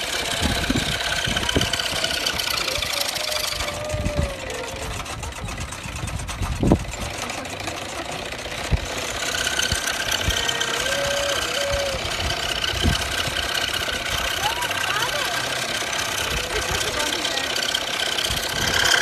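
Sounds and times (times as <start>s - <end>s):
engine running steadily: 0.0s - 19.0s
scroll saw clattering: 4.8s - 19.0s.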